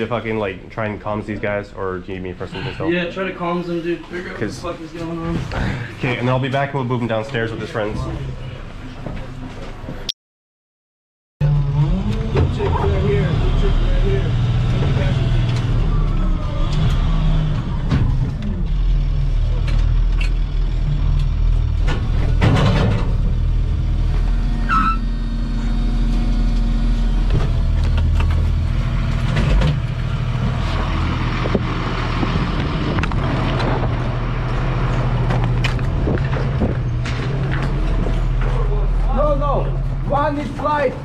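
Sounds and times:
vehicle engine drone: 11.4s - 41.0s.

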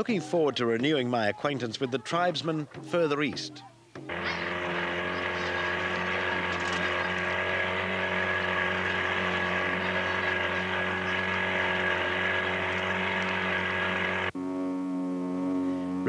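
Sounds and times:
small outboard motor running: 4.1s - 16.0s.

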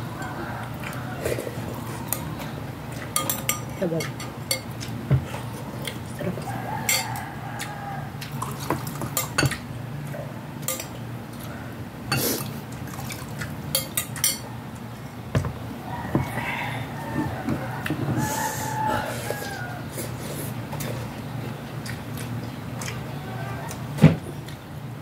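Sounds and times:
metal spoon clinking in glass bowl: 6.9s - 7.1s, 13.7s - 14.4s
dishes knocking on table: 15.4s - 16.4s.

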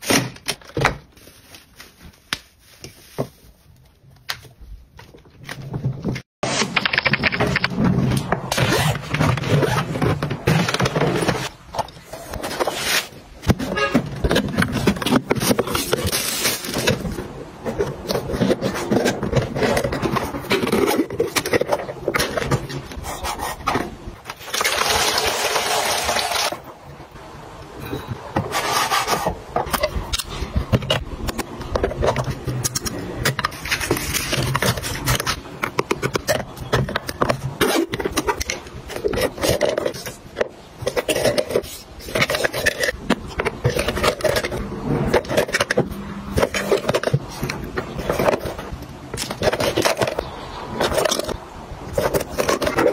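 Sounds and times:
plastic rustling: 0.0s - 26.8s.

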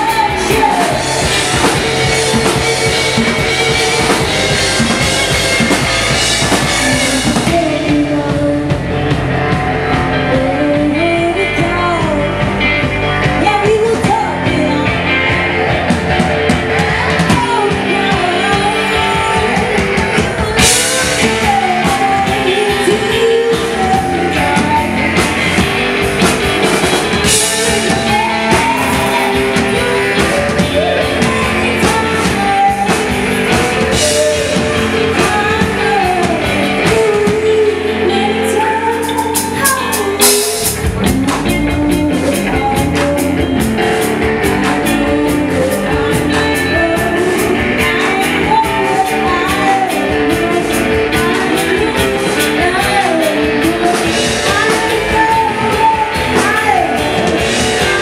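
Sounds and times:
live rock band playing: 0.0s - 58.0s
man singing: 26.7s - 58.0s.

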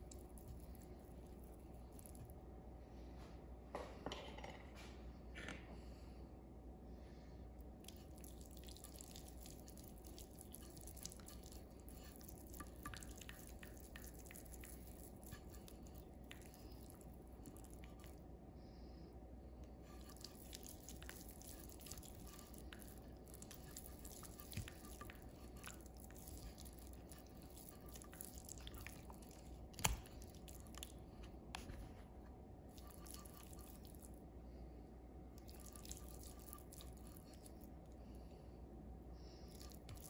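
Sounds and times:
hand squishing butter on meat: 0.0s - 2.6s, 7.6s - 18.5s, 19.6s - 34.4s, 35.3s - 38.0s, 39.2s - 40.0s.

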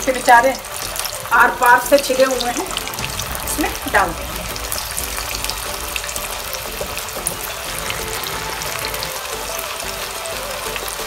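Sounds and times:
potatoes deep-frying in oil: 0.0s - 11.0s.

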